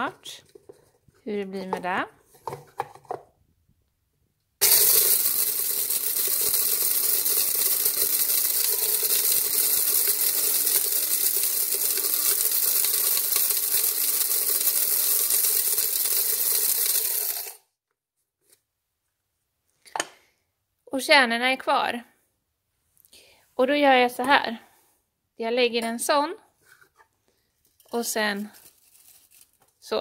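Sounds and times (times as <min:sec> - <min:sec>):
electric coffee grinder grinding: 0:04.6 - 0:17.7.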